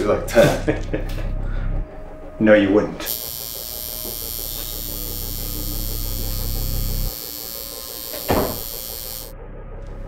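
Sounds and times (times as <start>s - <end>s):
tattoo machine buzzing: 3.1s - 9.4s.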